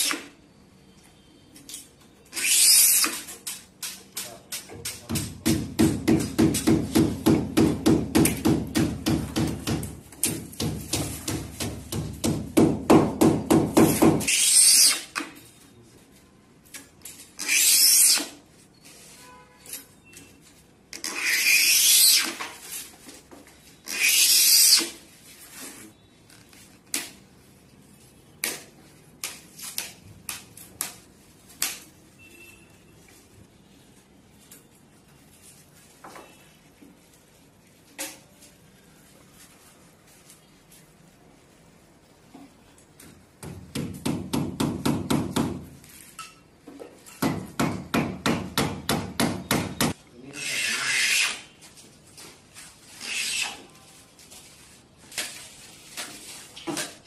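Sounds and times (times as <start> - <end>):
hammer tapping nails: 3.8 - 14.3.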